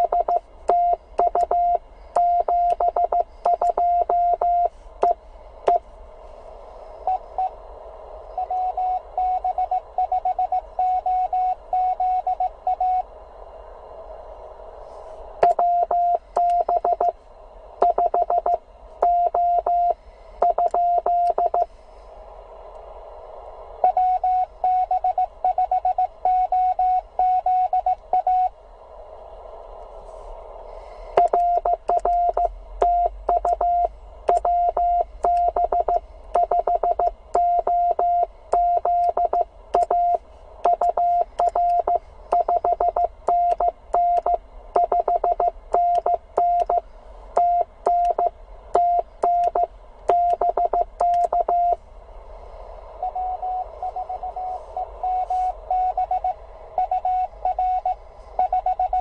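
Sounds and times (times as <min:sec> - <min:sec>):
morse code tone: 0:00.0 - 0:05.8, 0:31.2 - 0:46.8, 0:47.4 - 0:51.8, 0:53.0 - 0:59.0
receiver hiss: 0:00.0 - 0:59.0.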